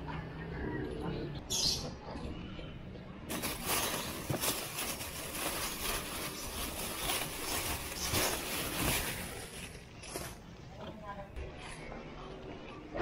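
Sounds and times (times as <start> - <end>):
plastic bags crinkling: 3.3 - 10.5.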